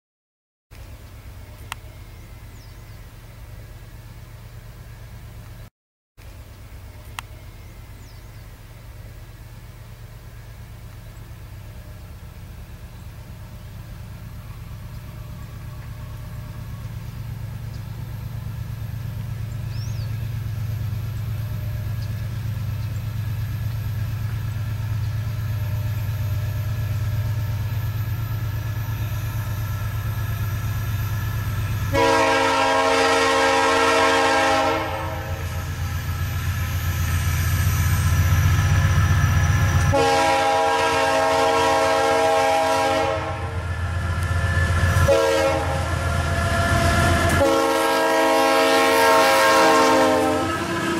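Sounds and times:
diesel locomotive rumbling: 0.7 - 50.9
locomotive air horn blasts: 31.8 - 35.8, 39.8 - 50.9.

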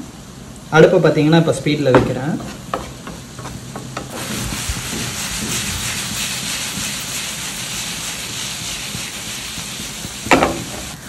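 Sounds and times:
onions frying in a pan: 4.1 - 11.0.

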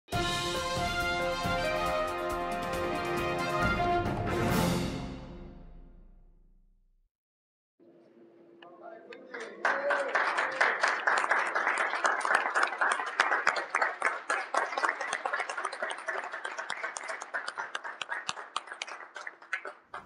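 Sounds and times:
crowd applauding: 9.1 - 20.0.

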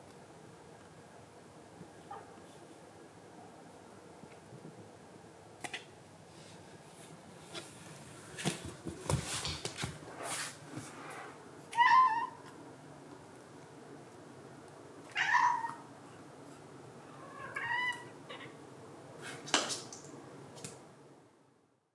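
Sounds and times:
rustling and light knocks: 7.1 - 11.0
cat meowing: 11.7 - 12.4, 15.1 - 15.8, 17.2 - 18.6.

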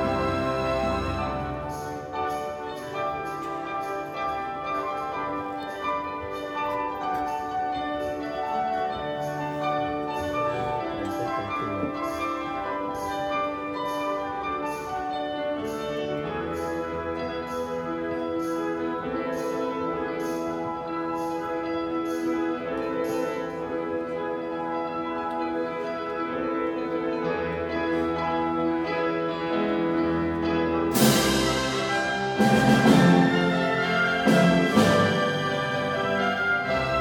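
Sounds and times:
orchestra brass and string chords: 0.0 - 3.8, 26.2 - 37.0.

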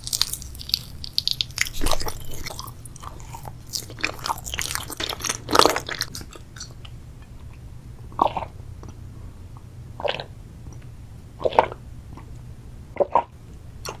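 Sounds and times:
person chewing: 0.0 - 7.6, 8.2 - 9.0
person gulping a drink: 0.2 - 6.9, 10.0 - 10.3, 11.4 - 11.8.

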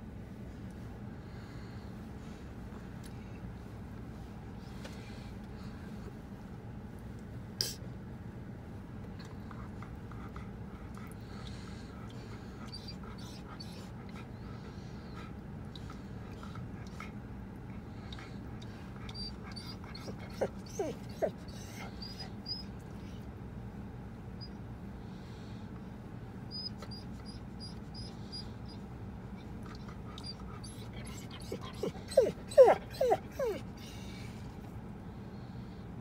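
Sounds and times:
steady low hum: 0.0 - 36.0
dog whining in high squeals: 12.7 - 13.9, 19.1 - 22.8, 26.5 - 28.8, 30.2 - 34.0.

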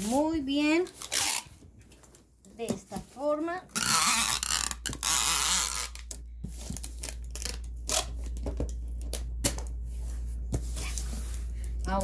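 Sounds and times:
packing tape unrolling from tape gun: 0.8 - 1.6, 3.7 - 9.7.

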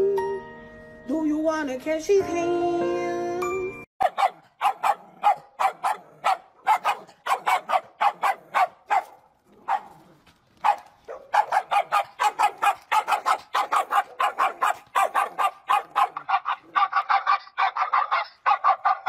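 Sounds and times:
small dog barking: 4.0 - 19.0.

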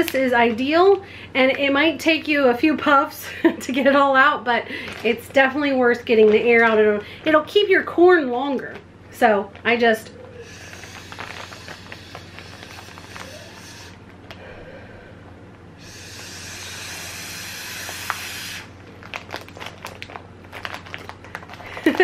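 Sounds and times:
plastic bag crackling: 4.5 - 7.9, 10.4 - 14.4, 17.8 - 22.0
air sucked through a straw: 15.8 - 18.7.

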